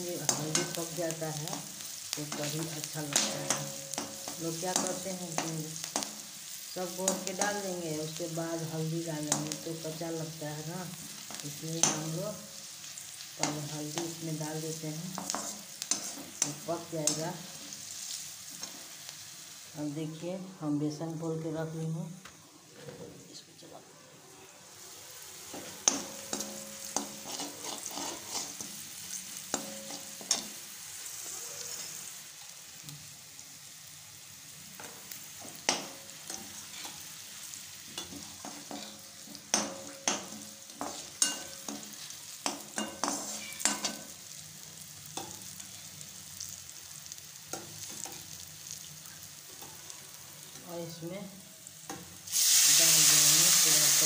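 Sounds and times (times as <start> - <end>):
oil sizzling: 0.0 - 22.5, 24.2 - 54.0
metal spatula scraping pan: 25.5 - 28.9, 36.3 - 37.1, 38.0 - 44.1.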